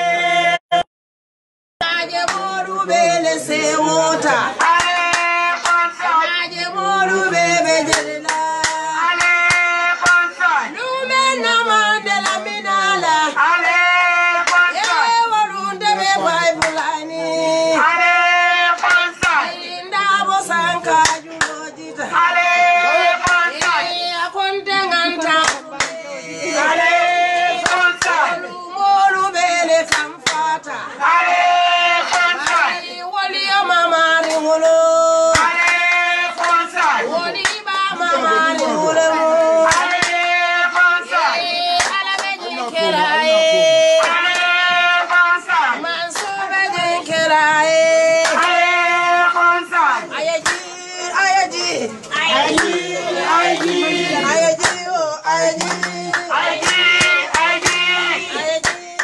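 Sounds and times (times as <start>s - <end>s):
voices singing long notes: 1.8s - 59.0s
hand claps: 2.2s - 2.5s, 4.2s - 5.9s, 7.9s - 10.4s, 12.2s - 12.4s, 14.3s - 15.2s, 16.6s - 17.0s, 18.7s - 19.5s, 21.0s - 21.6s, 23.2s - 23.9s, 25.2s - 26.0s, 27.6s - 28.3s, 29.8s - 30.5s, 32.1s - 32.8s, 34.1s - 34.5s, 35.3s - 48.6s, 49.8s - 50.7s, 52.0s - 52.8s, 53.6s - 59.0s.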